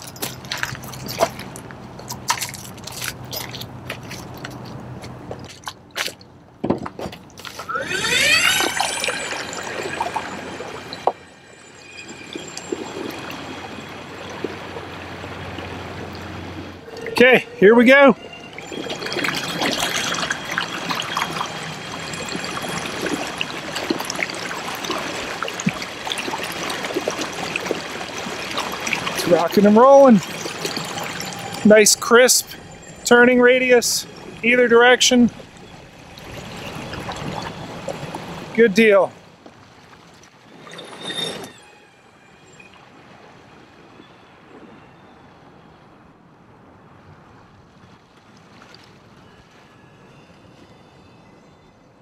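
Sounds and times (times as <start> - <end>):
water churning in prop wash: 7.3 - 41.6
faint high tone: 7.6 - 14.4, 16.8 - 24.2, 29.2 - 37.8
electric outboard motor running: 7.6 - 34.6.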